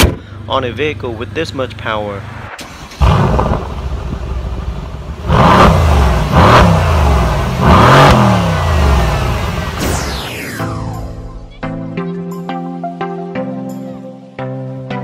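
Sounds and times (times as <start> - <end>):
car exhaust idling and revving: 3.0 - 9.8.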